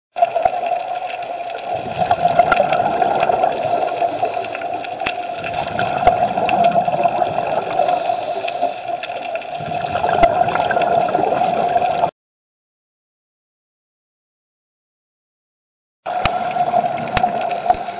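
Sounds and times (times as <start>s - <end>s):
bubbles: 0.1s - 12.1s, 16.1s - 17.9s
water gurgling: 0.1s - 12.1s, 16.1s - 17.9s
steady underwater hum: 0.2s - 12.1s, 16.1s - 17.9s.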